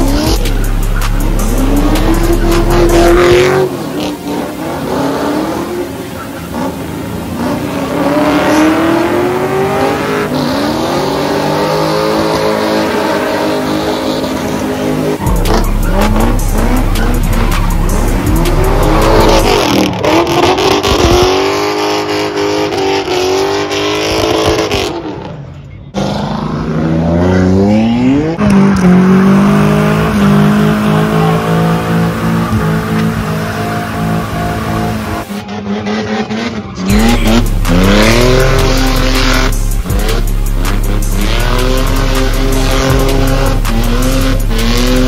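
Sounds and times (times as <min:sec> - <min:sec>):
high-revving car engines: 0:00.0 - 0:45.0
tyres screeching: 0:28.4 - 0:35.4.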